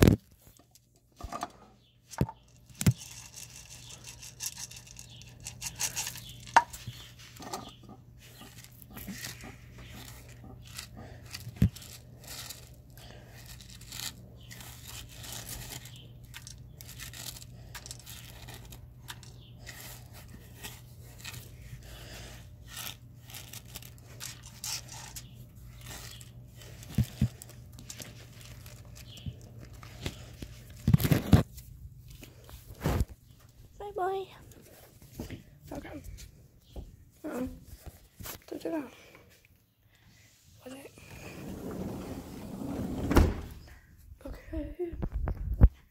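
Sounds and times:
microphone rubbing rustles: 0:30.0 - 0:33.4.

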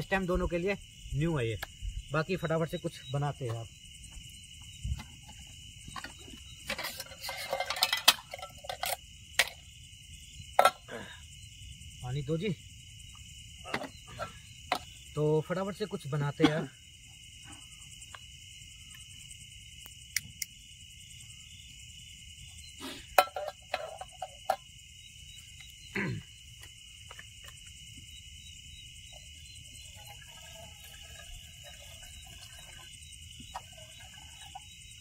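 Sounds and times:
crickets and insects trilling: 0:00.0 - 0:35.0.

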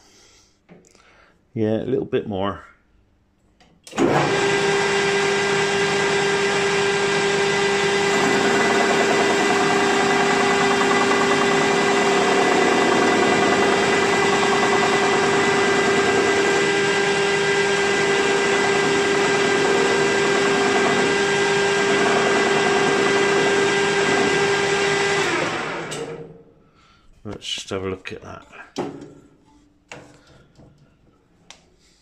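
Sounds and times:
metal lathe humming: 0:04.0 - 0:26.2.

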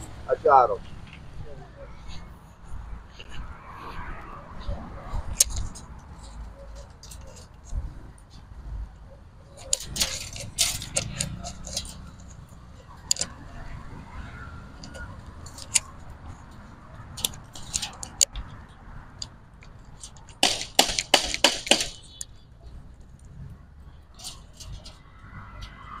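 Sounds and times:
metallic clicks of hand tools: 0:09.6 - 0:13.4, 0:14.8 - 0:15.9, 0:17.2 - 0:18.5.

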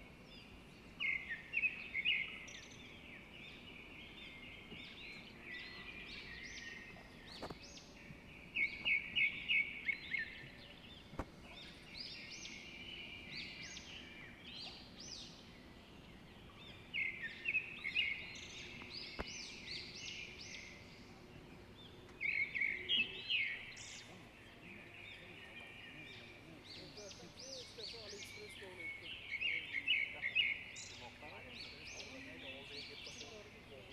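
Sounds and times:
songbirds singing and chirping: 0:00.0 - 0:33.9.

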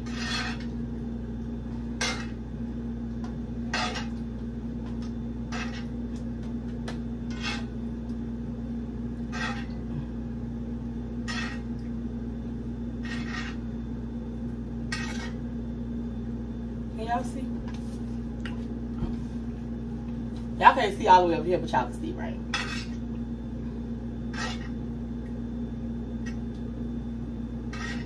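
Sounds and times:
utensil scraping cooking pot: 0:00.0 - 0:00.8, 0:01.8 - 0:02.4, 0:03.6 - 0:04.2, 0:05.4 - 0:05.9, 0:07.2 - 0:07.8, 0:09.2 - 0:09.8, 0:11.2 - 0:11.7, 0:13.0 - 0:13.7, 0:14.9 - 0:15.4, 0:22.5 - 0:23.0, 0:24.2 - 0:24.8, 0:27.7 - 0:28.0
steady low hum: 0:00.0 - 0:28.0.

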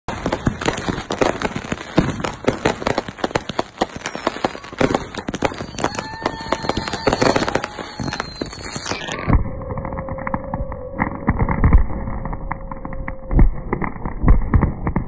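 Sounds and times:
fireworks crackling and banging: 0:00.1 - 0:15.0
steady whistling tone: 0:05.5 - 0:11.3.

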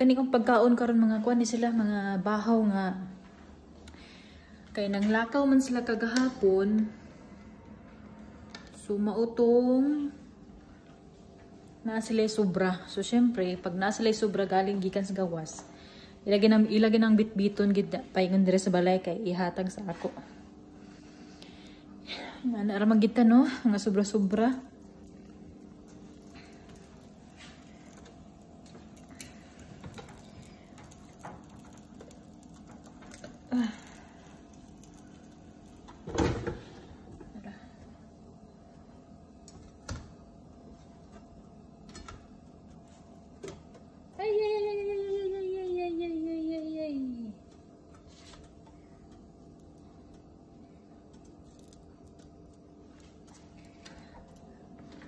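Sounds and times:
low steady hum: 0:00.0 - 0:55.0
rustling and taps of bread: 0:24.8 - 0:33.5.

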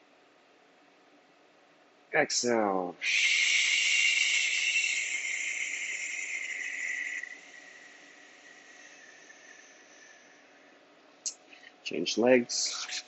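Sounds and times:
breath hissed through teeth: 0:03.0 - 0:10.3.

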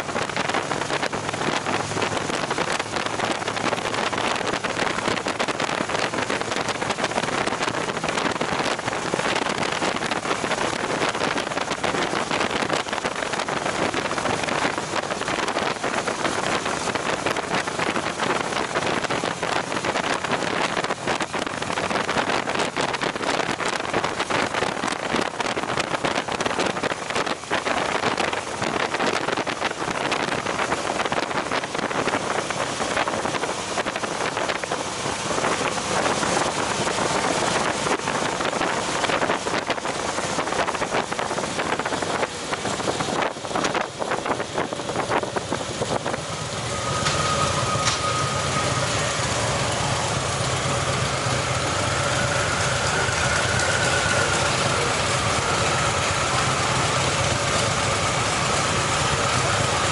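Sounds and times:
motorcycle engine running: 0:00.0 - 0:59.9
wind rushing over microphone: 0:00.0 - 0:59.9
faint steady whine: 0:45.8 - 0:59.9.

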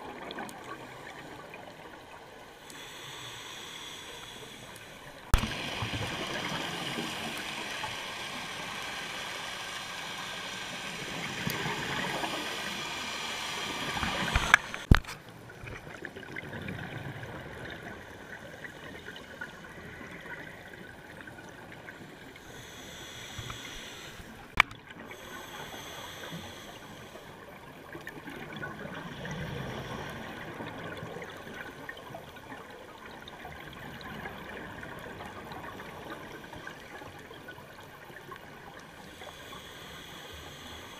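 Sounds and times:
sharp clicks: 0:11.1 - 0:15.2.

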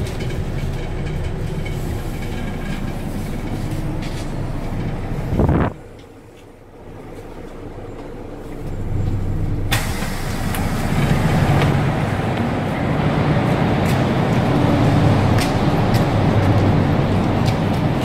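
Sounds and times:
bus engine idling: 0:00.0 - 0:18.0
pneumatic bus doors hissing: 0:09.7 - 0:11.8.

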